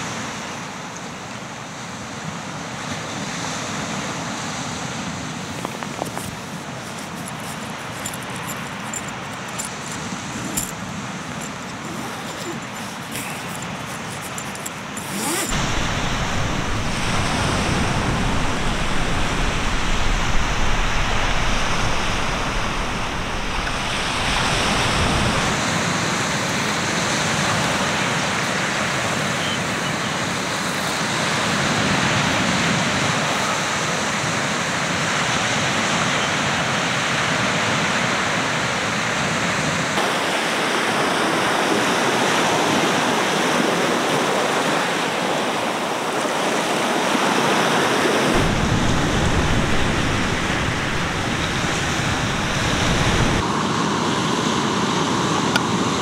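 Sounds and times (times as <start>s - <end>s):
sea surf washing onto beach: 14.8s - 56.0s
low rumble: 48.4s - 53.4s.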